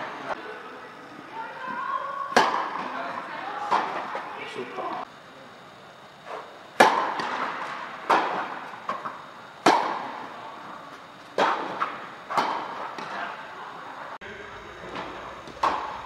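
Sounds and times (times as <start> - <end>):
tennis racket striking ball: 6.8 - 8.4.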